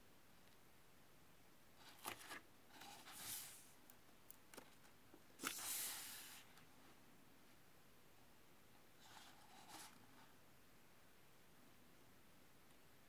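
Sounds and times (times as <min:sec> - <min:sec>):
book pages turning: 0:01.8 - 0:03.7, 0:05.4 - 0:06.5.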